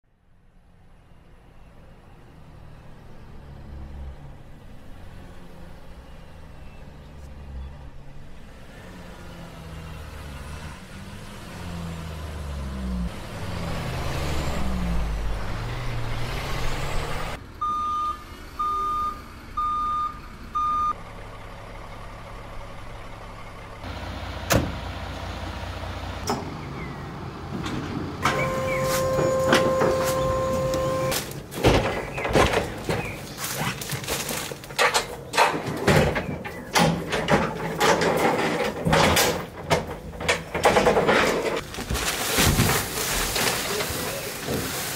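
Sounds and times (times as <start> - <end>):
truck engine running: 11.0 - 44.9
reversing alarm beeps: 17.6 - 21.0, 28.2 - 31.1
metallic clanks of loading ramp: 34.5 - 41.7.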